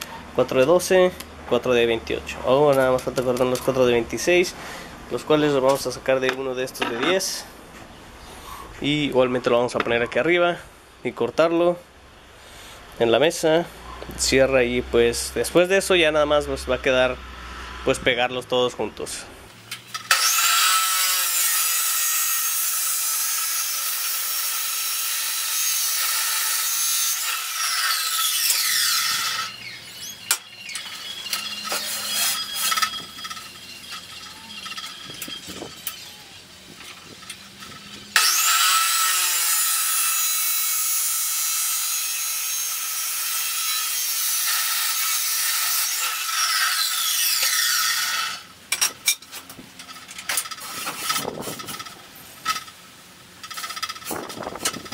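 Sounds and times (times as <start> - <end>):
chop saw grinding steel: 19.7 - 52.8, 53.4 - 54.9.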